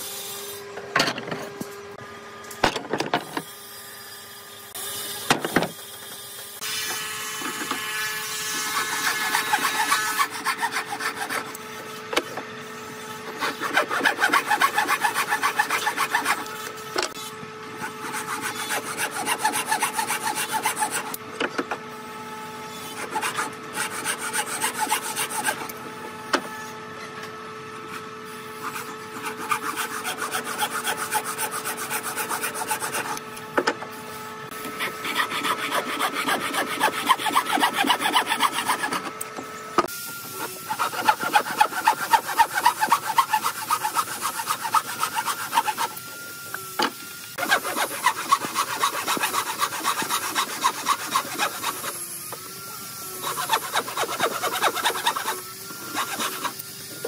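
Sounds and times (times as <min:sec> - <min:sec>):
hand saw cutting wood: 0:06.6 - 0:21.6, 0:22.7 - 0:25.8, 0:27.9 - 0:33.3, 0:34.5 - 0:39.4, 0:40.2 - 0:57.0.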